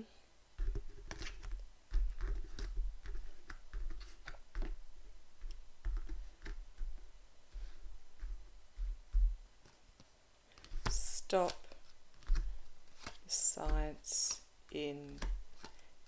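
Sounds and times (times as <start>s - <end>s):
cards clicking and flicking: 9.6s - 15.9s.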